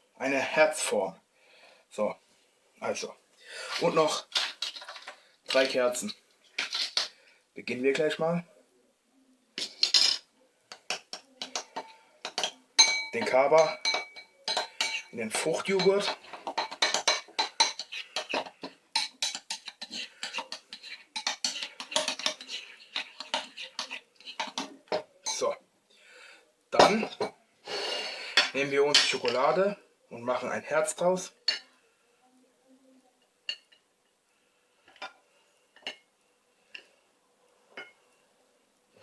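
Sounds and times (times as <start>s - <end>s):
spoon scraping and clinking in bowl: 6.6s - 7.1s, 9.6s - 25.4s.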